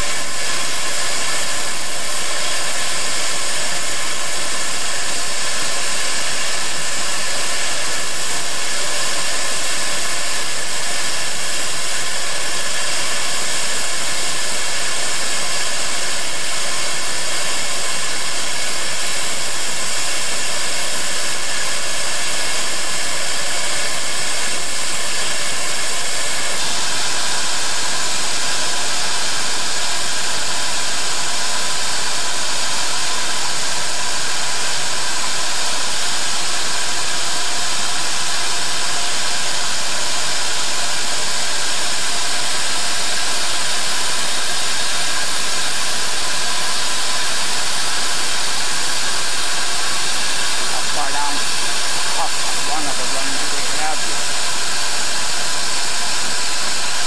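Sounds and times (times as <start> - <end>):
steam venting hiss: 47.9 - 57.0.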